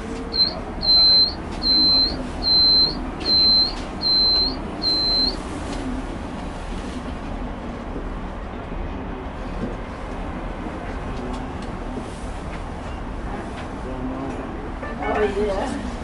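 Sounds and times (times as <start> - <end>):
cable car cabin rumble: 0.0 - 16.0
high beeps: 0.3 - 5.4.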